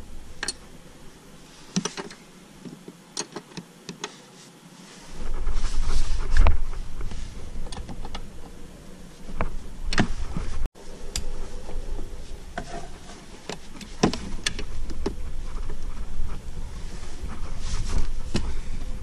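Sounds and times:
low handling rumble: 0:05.1 - 0:19.0.

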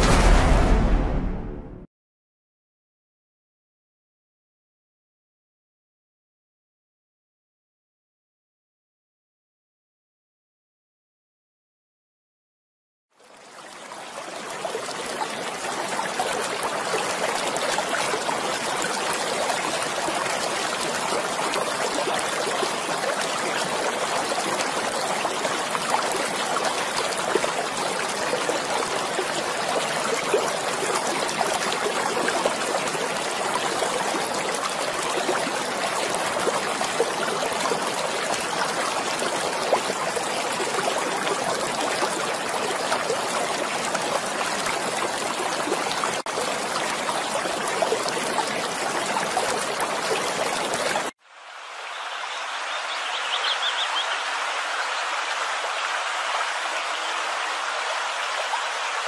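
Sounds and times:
stream water running: 0:13.1 - 0:59.0.

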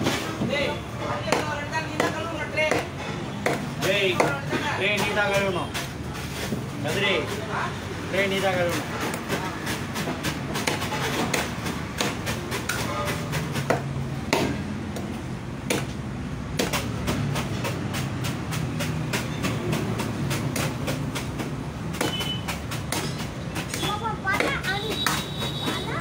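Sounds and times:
knife chopping fish on board: 0:01.3 - 0:04.6, 0:09.0 - 0:15.1, 0:15.7 - 0:15.9, 0:16.5 - 0:25.3.

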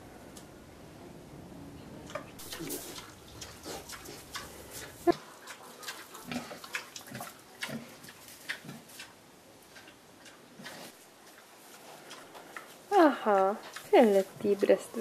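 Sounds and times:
soft pig grunts: 0:02.4 - 0:08.0.

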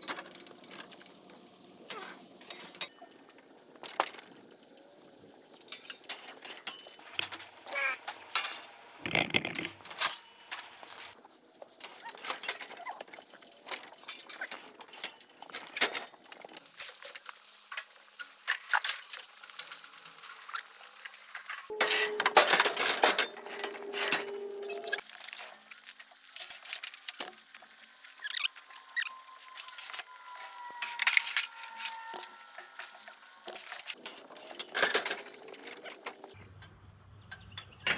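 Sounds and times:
metal chute gate clinking and rattling: 0:21.7 - 0:25.1, 0:29.6 - 0:37.9.

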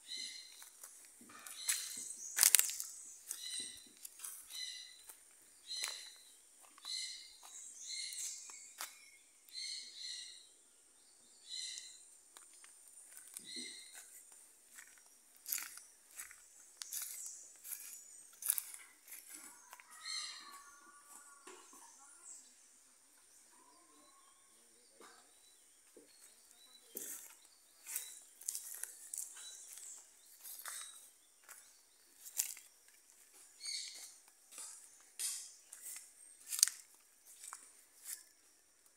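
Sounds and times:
bird chirps: 0:00.0 - 0:12.2, 0:13.0 - 0:38.9
footsteps on dry leaves: 0:00.1 - 0:09.0, 0:12.4 - 0:21.4, 0:26.2 - 0:38.7.

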